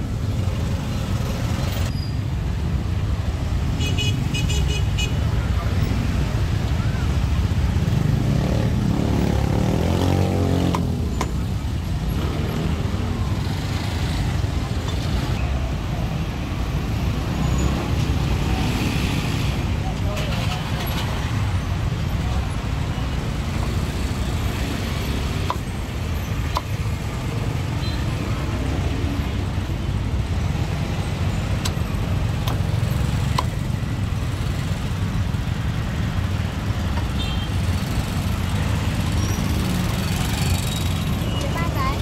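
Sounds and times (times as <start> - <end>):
road traffic rumble: 0.0 - 42.0
cleaver chopping on wooden block: 26.5 - 26.8.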